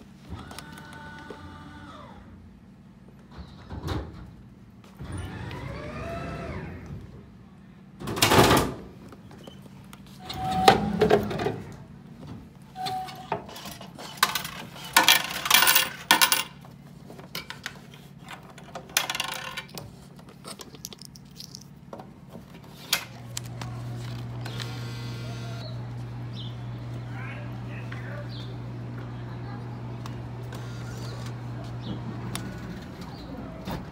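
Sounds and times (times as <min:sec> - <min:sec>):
low motor hum: 0:05.0 - 0:07.5, 0:23.0 - 0:33.9.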